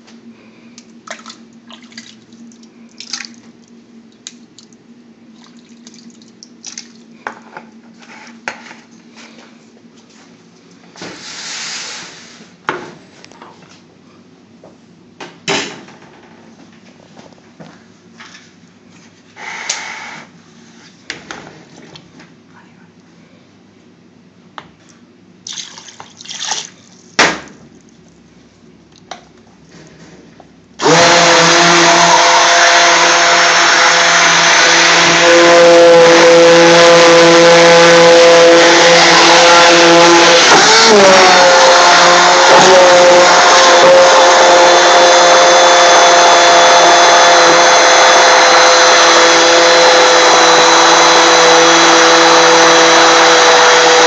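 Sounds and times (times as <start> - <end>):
stick blender running: 30.8 - 54.0.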